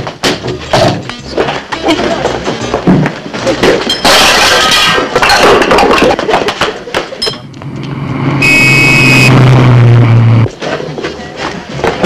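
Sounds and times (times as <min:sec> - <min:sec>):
short high squeal: 0:08.4 - 0:09.4.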